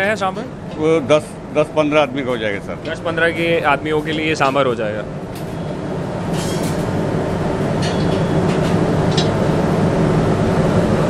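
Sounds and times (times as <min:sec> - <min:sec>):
gas burner roaring: 0:00.0 - 0:11.0
utensils clinking: 0:07.8 - 0:09.3.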